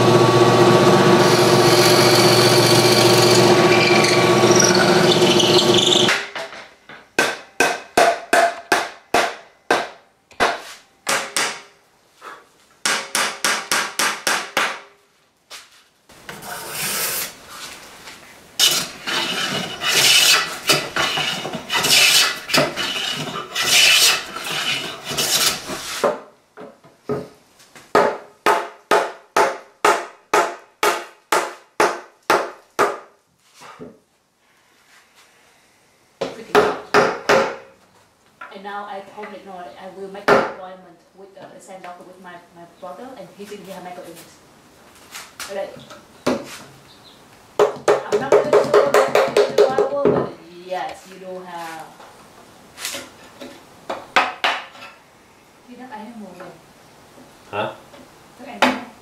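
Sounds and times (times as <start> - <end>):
drill press boring into wood: 0.0 - 6.1
hand tool strikes on wood: 6.0 - 11.7, 12.8 - 15.0, 19.9 - 24.4, 25.1 - 33.1, 36.2 - 37.7, 47.6 - 50.2, 52.9 - 54.8
scraping on wood: 16.3 - 26.2.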